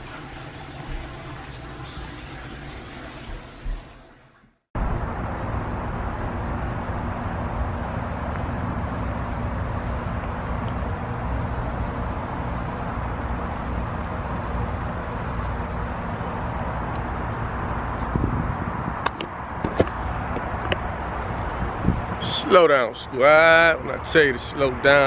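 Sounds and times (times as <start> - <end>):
car engine hum: 4.8 - 22.2
road noise: 4.8 - 25.0.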